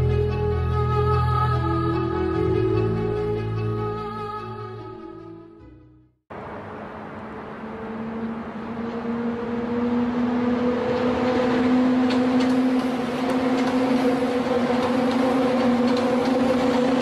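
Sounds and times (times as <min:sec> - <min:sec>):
maglev train hum and rush: 0:06.3 - 0:17.0.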